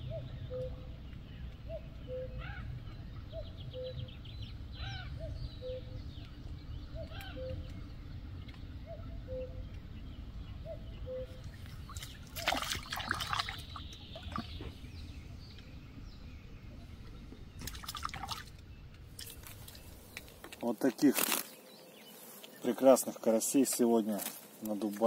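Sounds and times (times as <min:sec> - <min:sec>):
fish splashing at water surface: 0:11.7 - 0:14.6, 0:17.6 - 0:18.5.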